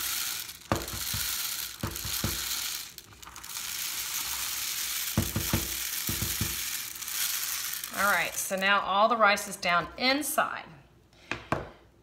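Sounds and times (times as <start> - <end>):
dry rice pouring through funnel: 0.0 - 8.9.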